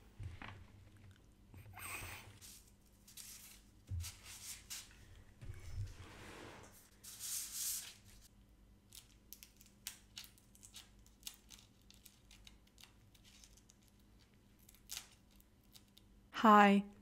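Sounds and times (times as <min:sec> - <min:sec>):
paper rustling and scraping on wall: 0:02.4 - 0:08.3.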